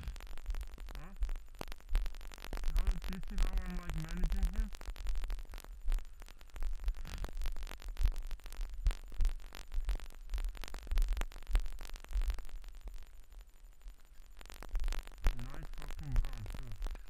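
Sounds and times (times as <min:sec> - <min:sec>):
wind rumbling on microphone: 0:00.0 - 0:05.2.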